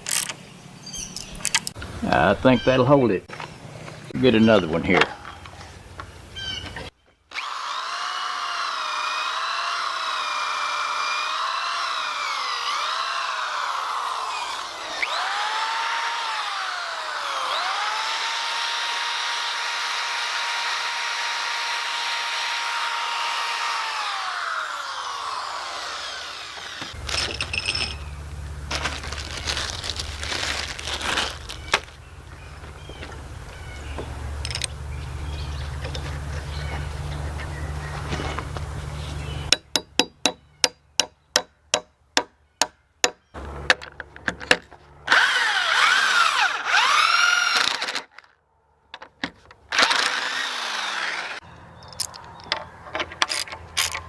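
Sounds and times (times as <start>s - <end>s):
cordless drill into log: 7.3s - 27.0s, 45.1s - 48.2s, 49.7s - 51.4s.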